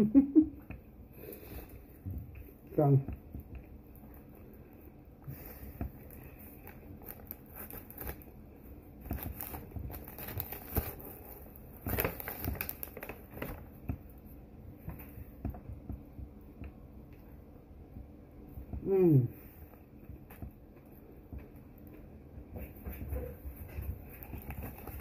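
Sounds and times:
paper wrapper crinkling: 6.0 - 8.4, 9.0 - 13.8, 23.9 - 25.0.

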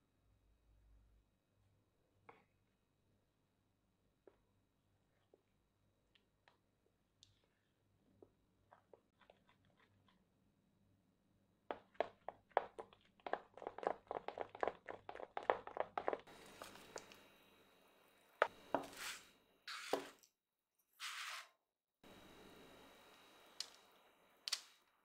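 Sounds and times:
spoon stirring batter in bowl: 8.3 - 10.4, 11.6 - 17.2.

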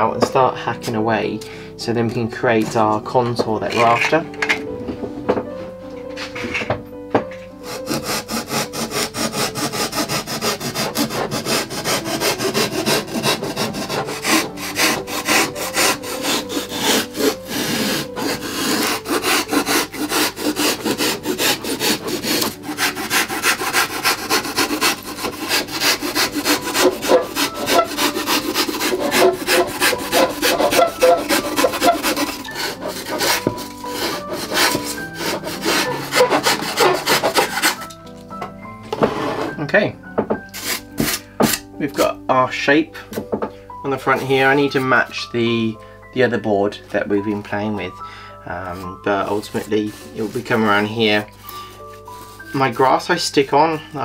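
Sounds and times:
knife sawing through foam: 7.6 - 38.0, 40.6 - 41.6, 48.8 - 52.8.

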